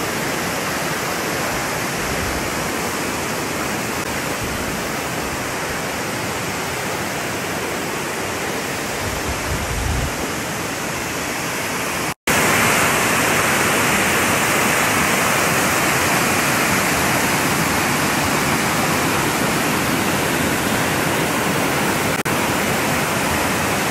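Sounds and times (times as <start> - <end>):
water rushing over rock: 0.0 - 23.9.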